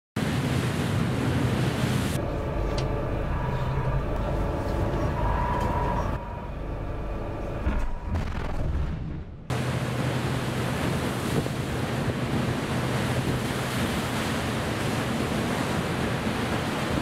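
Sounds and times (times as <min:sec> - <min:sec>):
ship machinery hum: 0:00.2 - 0:08.6, 0:09.2 - 0:17.0
wind and sea noise: 0:00.2 - 0:17.0
faint whining tones: 0:02.2 - 0:08.2.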